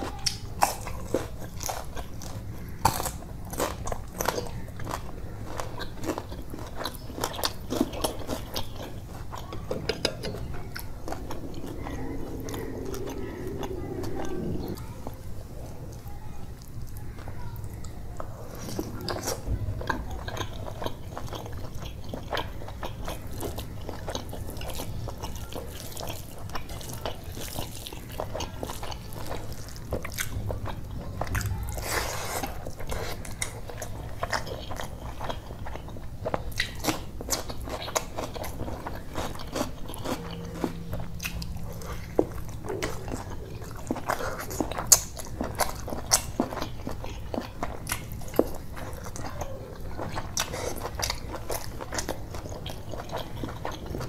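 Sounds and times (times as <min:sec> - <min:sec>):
man chewing food: 0:00.0 - 0:54.0.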